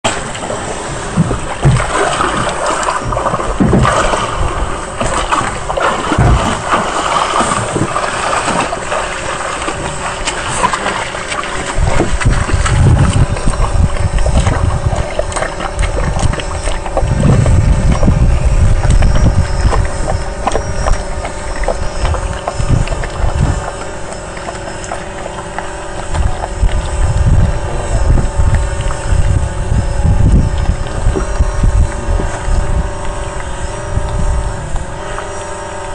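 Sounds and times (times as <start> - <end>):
boat engine running: 0.0 - 35.9
wind buffeting microphone: 0.0 - 35.9.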